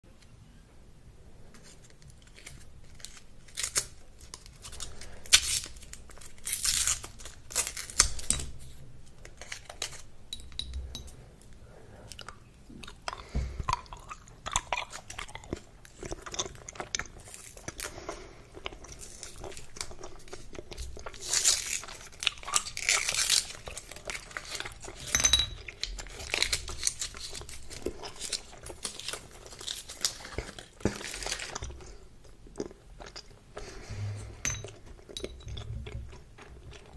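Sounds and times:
gum chewing clicks and smacks: 12.1s - 24.9s, 34.6s - 36.9s.

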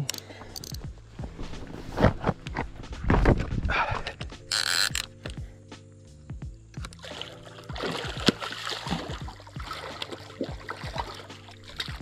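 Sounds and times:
fish splashing in water: 7.0s - 12.0s.

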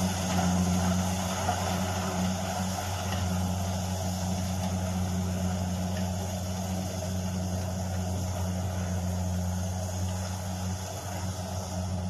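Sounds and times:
combine harvester engine droning: 0.0s - 12.0s.

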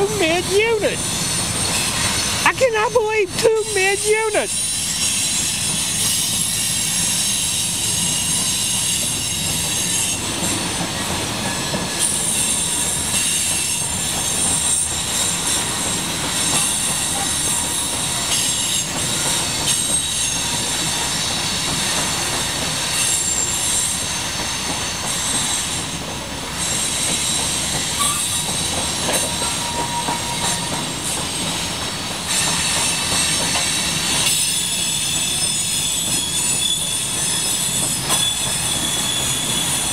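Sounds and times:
train cars rumbling: 0.0s - 39.9s
wheels clacking over rail joints: 6.0s - 39.9s
high-pitched wheel squeal: 28.0s - 31.2s, 32.3s - 39.9s.

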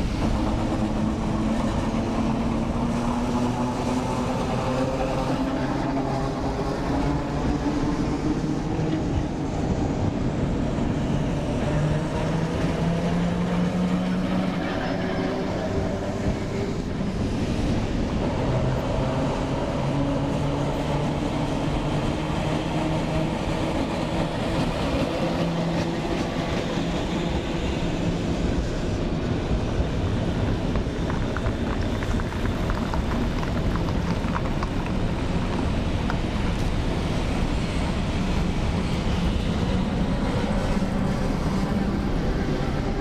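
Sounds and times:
tram rolling on rails: 0.0s - 43.0s
wheels clicking over track: 30.4s - 41.7s.

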